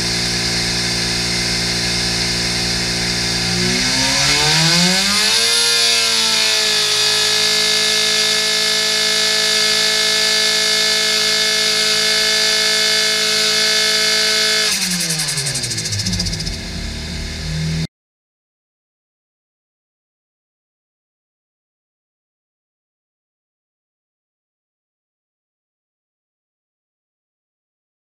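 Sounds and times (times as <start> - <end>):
engine revving: 0.0 - 17.9.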